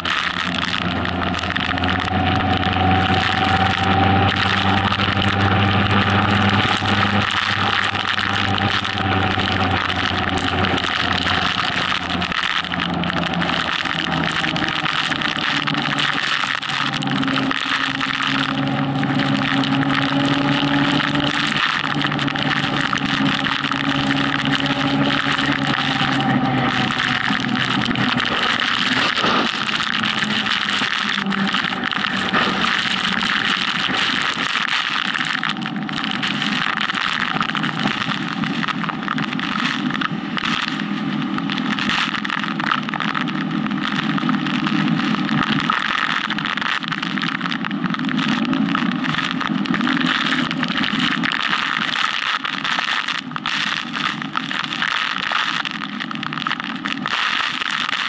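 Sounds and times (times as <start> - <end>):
motorcycle engine running: 0.0 - 34.4
wind and rain noise: 0.0 - 58.0.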